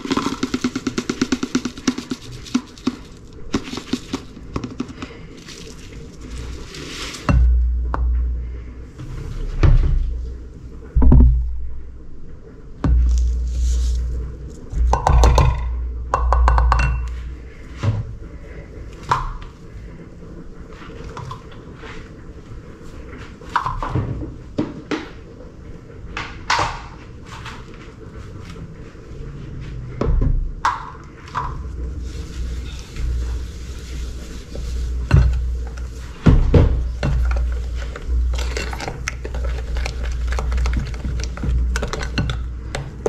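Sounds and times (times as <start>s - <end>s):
cup and bowl clinking: 14.9s - 17.2s.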